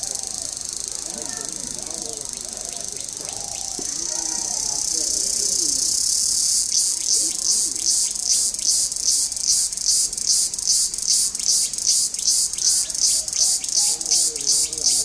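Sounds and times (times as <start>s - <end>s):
dove cooing: 0.0s - 0.6s, 1.3s - 5.9s, 12.9s - 15.0s.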